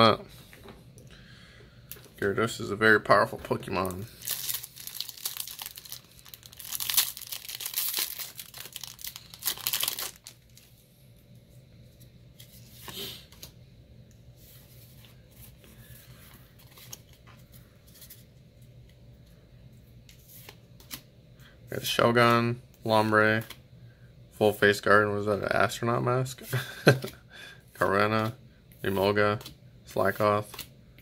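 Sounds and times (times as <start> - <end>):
foil wrapper tearing and crinkling: 4.2 - 10.6.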